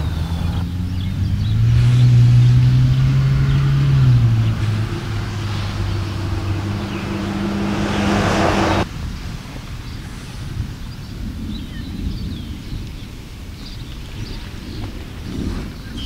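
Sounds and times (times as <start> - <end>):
vehicle engine humming: 0.0 - 8.9.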